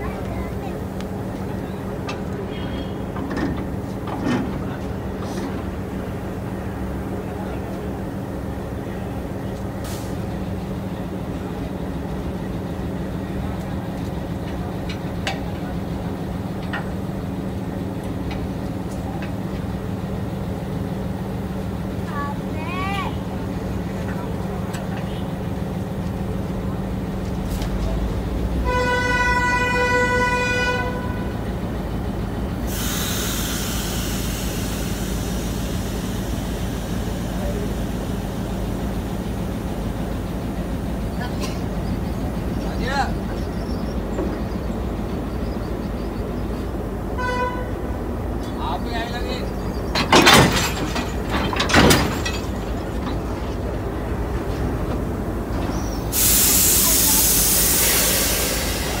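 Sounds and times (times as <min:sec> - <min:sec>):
locomotive engine idling: 0:00.0 - 0:59.0
locomotive horn: 0:28.6 - 0:31.5, 0:47.1 - 0:47.9
air hissing from brake line: 0:32.6 - 0:37.5, 0:55.7 - 0:59.0
steady hiss: 0:56.0 - 0:59.0.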